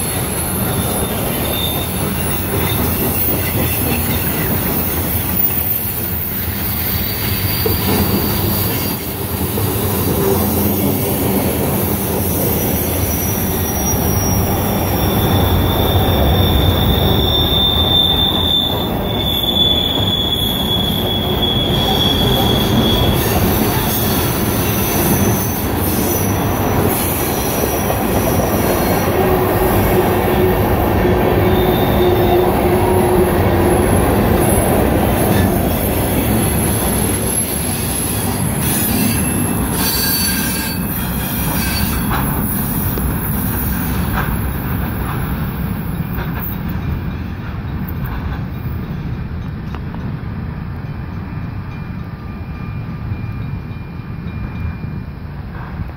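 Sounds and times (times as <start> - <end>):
high-pitched wheel squeals: 0.0 - 9.3, 10.5 - 29.8, 31.3 - 32.6, 35.2 - 44.0
train wheels rumbling and clattering: 0.0 - 55.9.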